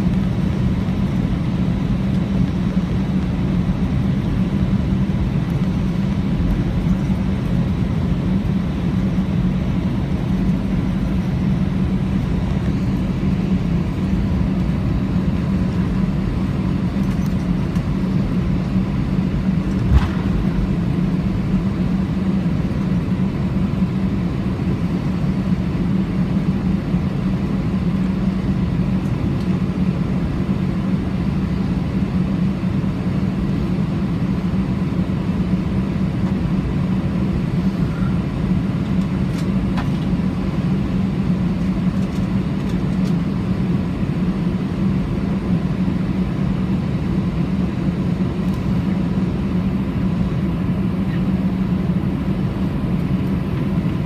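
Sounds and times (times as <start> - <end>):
aircraft cabin rumble and hum: 0.0 - 54.0.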